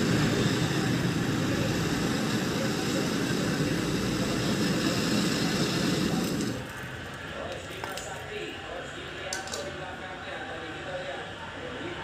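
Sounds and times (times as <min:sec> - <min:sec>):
gas torch flame roaring: 0:00.0 - 0:08.1.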